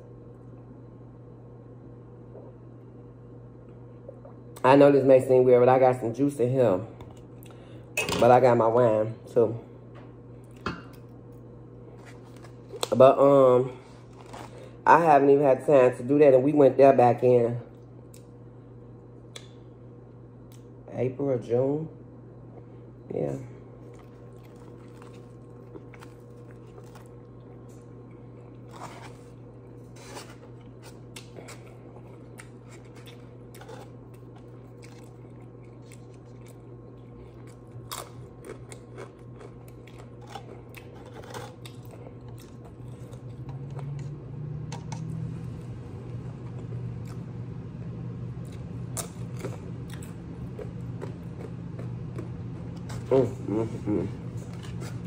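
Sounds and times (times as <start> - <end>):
steady low hum: 0.0 - 55.0
chewing and crunching tacos: 10.4 - 13.1, 13.7 - 14.8, 23.8 - 55.0.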